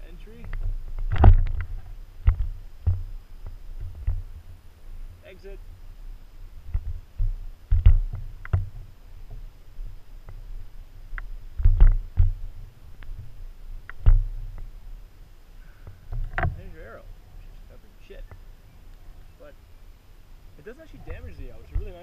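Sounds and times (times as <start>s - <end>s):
footsteps on grass and dirt: 6.0s - 14.9s.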